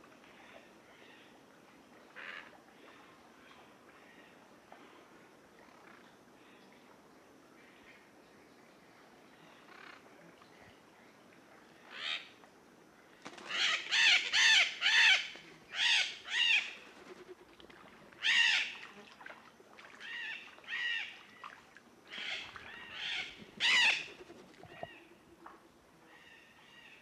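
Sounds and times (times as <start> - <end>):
macaws screeching: 13.5 - 17.4, 18.2 - 18.8, 22.1 - 24.9.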